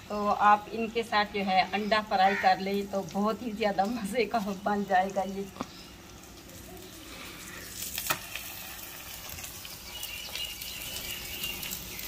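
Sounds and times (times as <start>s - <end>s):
flatbread sizzling on griddle: 2.6s - 12.0s.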